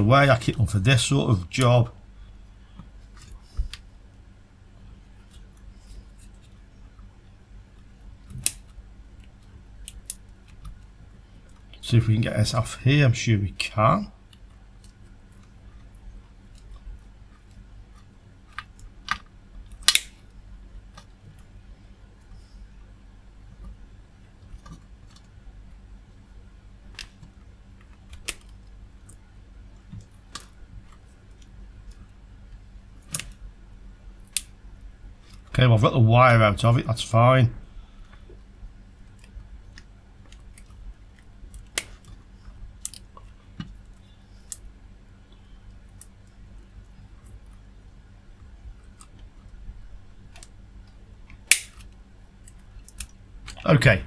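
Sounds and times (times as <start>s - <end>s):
wire cutters clicking on connector: 51.5s - 51.9s.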